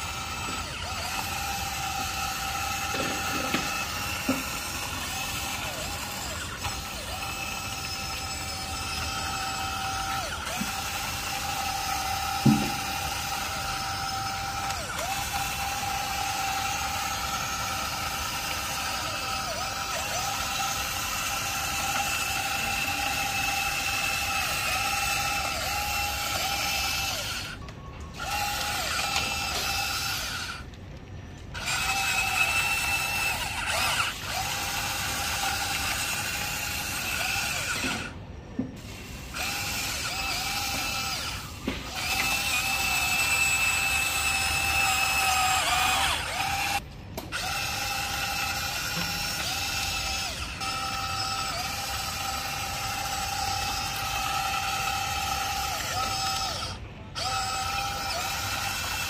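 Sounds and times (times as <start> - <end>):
small electric motors whining: 0.0 - 59.0.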